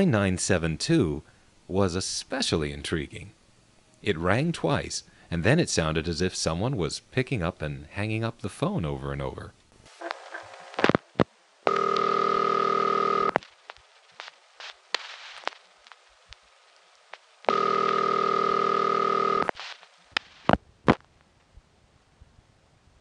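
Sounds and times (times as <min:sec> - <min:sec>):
phone line clicks: 0:11.7 - 0:13.4, 0:17.5 - 0:19.6
telephone ringback tone: 0:11.7 - 0:13.4, 0:17.5 - 0:19.5.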